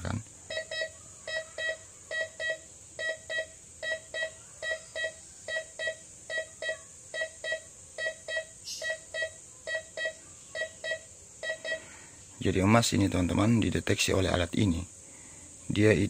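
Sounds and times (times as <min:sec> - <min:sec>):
metal detector beeping: 0:00.5 - 0:11.9.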